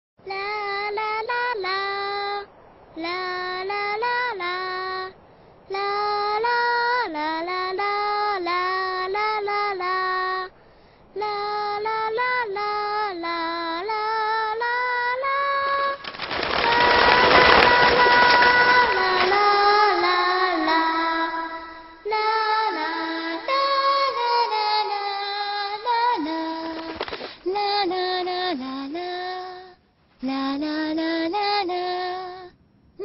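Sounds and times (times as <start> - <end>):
girl singing: 0.2 - 33.0.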